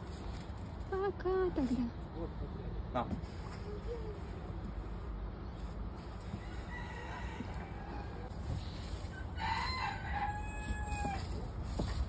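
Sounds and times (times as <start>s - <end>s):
rooster crowing: 6.3s - 8.3s, 9.1s - 11.4s.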